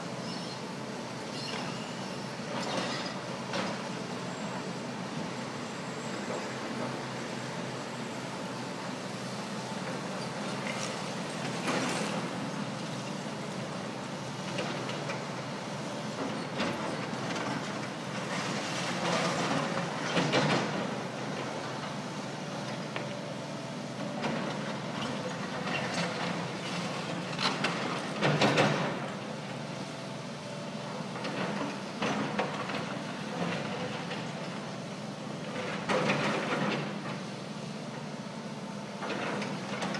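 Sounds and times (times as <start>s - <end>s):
excavator engines running: 0.0s - 39.9s.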